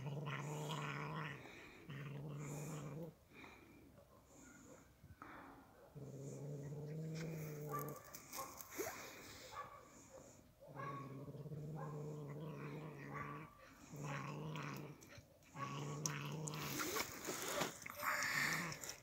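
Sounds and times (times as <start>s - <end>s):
cat growling: 0.0s - 3.6s, 6.0s - 8.0s, 10.8s - 19.0s.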